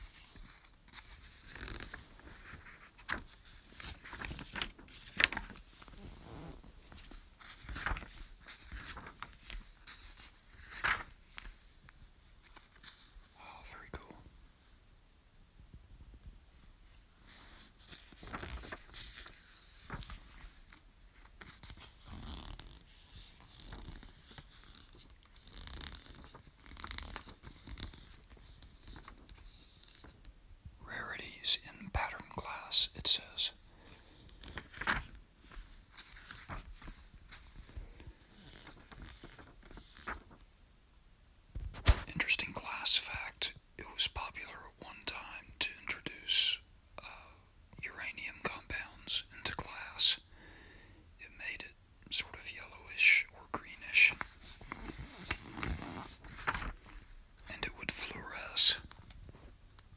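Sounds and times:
book pages flipping: 0.0 - 13.3, 17.2 - 30.2, 34.2 - 40.4, 41.6 - 42.1, 54.1 - 57.2.

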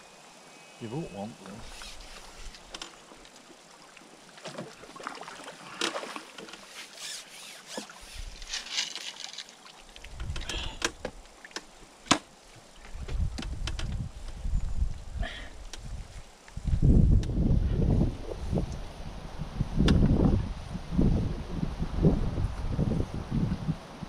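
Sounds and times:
water splashing and trickling: 1.4 - 16.5
fishing tackle clicks and knocks: 7.7 - 9.5.

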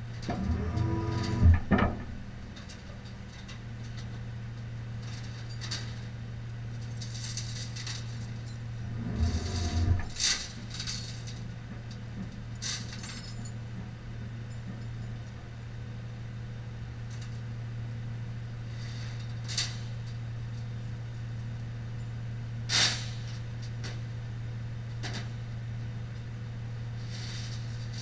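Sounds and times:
metal clinks and rattles: 5.0 - 6.1, 6.7 - 13.9, 27.2 - 28.0.

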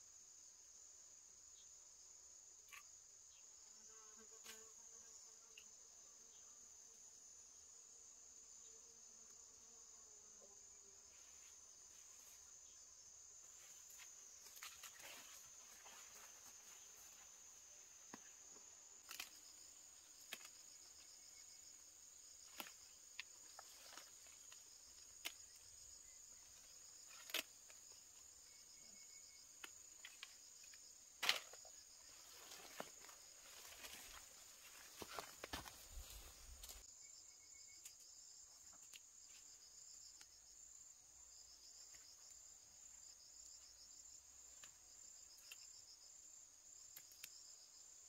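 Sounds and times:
insects droning: 0.0 - 48.0
leafy plants snapping and rustling: 13.8 - 16.8, 19.0 - 21.0, 22.4 - 25.8, 26.5 - 27.9, 29.6 - 36.8.

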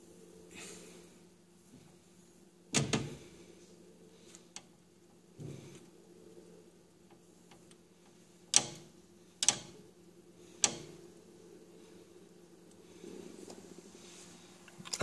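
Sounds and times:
faint steady low hum: 0.0 - 15.0.

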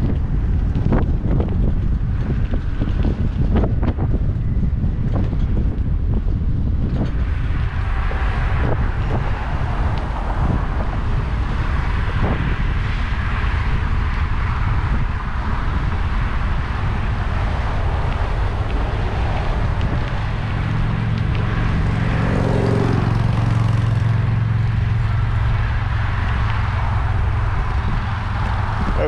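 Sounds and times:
low engine-like hum: 0.0 - 29.0
wind buffeting microphone: 0.0 - 29.0.

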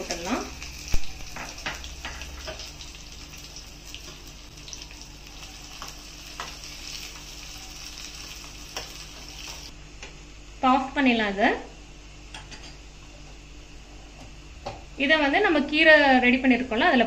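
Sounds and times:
spices sizzling in hot fat: 0.0 - 9.7.

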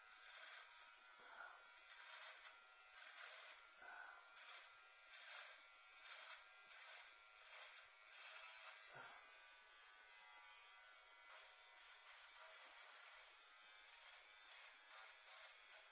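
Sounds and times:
electric trimmer buzzing: 0.0 - 15.9.

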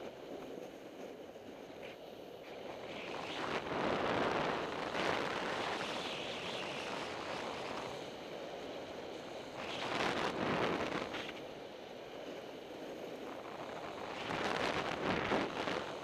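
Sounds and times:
wind on microphone: 0.0 - 11.5, 12.2 - 16.0.

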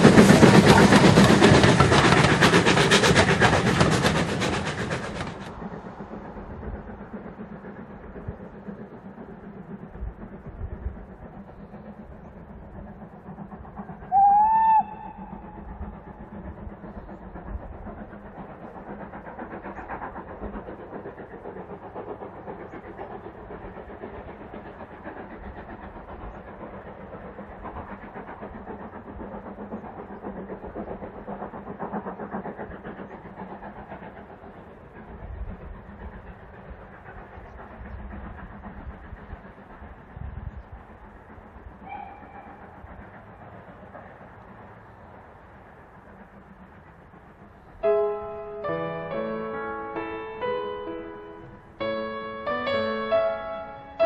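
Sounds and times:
distant steam train running: 0.0 - 54.0
steam whistle blast: 14.1 - 15.2.

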